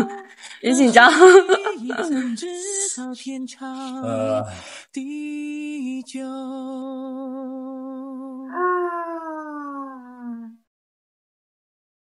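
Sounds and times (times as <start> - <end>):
person singing long wavering notes: 3.9 - 9.3.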